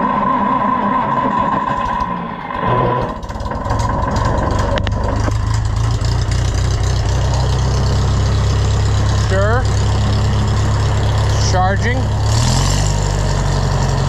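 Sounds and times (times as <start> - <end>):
tractor starter cranking: 1.7 - 14.0
tractor engine idling: 3.1 - 14.0.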